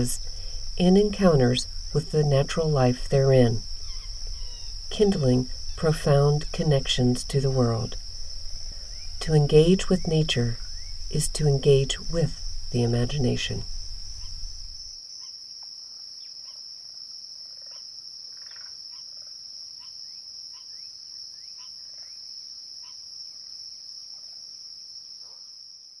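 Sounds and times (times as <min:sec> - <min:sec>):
crickets trilling: 0:00.0 - 0:25.8
short cricket chirps: 0:03.3 - 0:16.7.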